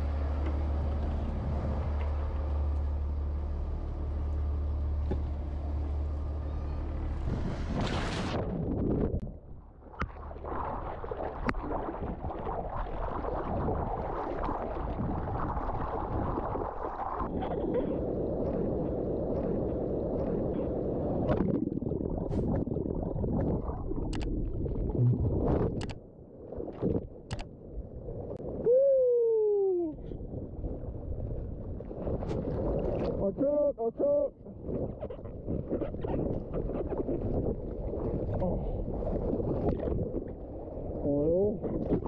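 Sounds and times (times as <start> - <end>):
rushing sea water: 0.0 - 28.8, 29.5 - 42.0
wind on microphone: 7.2 - 26.0, 34.4 - 42.0.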